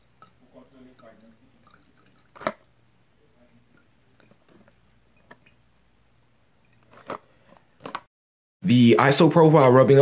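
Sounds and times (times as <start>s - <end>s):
liquid dripping: 0.0s - 7.0s.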